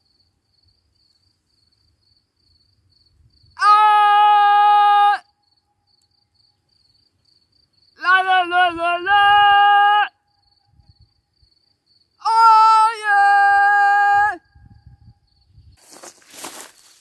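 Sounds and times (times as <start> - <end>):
woman yelling: 3.6 - 5.2, 8.0 - 10.1, 12.2 - 14.4.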